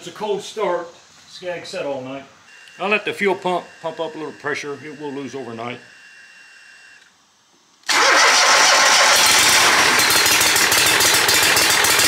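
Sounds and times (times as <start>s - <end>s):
mower engine cranking and running: 7.8s - 12.0s.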